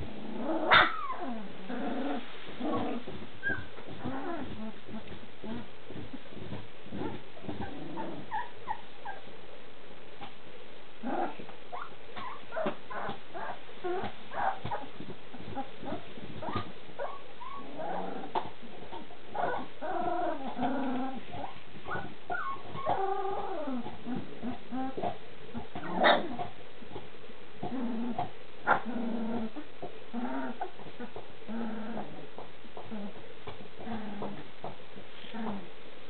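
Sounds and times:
puppies whimpering and yipping: 0:00.7 - 0:01.3, 0:03.4 - 0:04.6, 0:16.4 - 0:17.7, 0:21.3 - 0:23.5.

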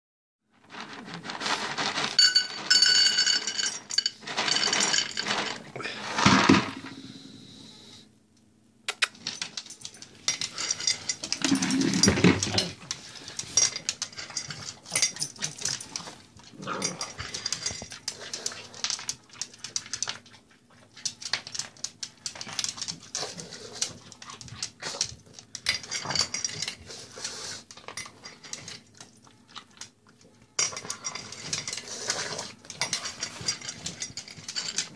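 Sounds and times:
dog crunching kibble: 0:00.6 - 0:06.2, 0:08.9 - 0:34.9
kibble poured into metal bowl: 0:00.6 - 0:07.0.

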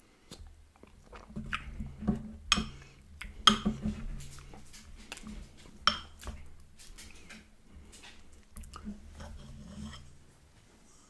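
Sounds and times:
wet chewing: 0:00.3 - 0:10.2
metal spoon scraping glass mug: 0:09.2 - 0:10.1.

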